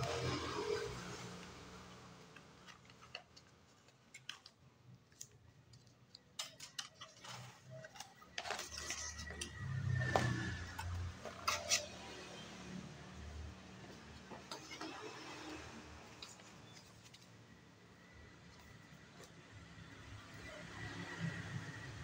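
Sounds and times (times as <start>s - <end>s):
packaging clicks and rustles: 2.3s - 9.5s.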